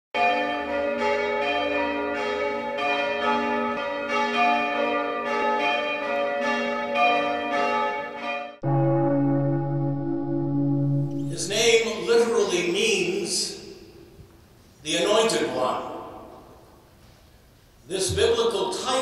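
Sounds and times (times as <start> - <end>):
church bells pealing: 0.2 - 12.8.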